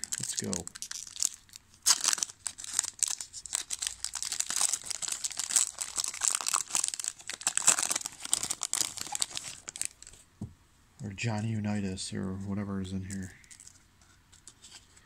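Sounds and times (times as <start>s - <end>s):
foil crinkling: 0.0s - 10.2s
foil wrapper tearing: 0.0s - 10.2s.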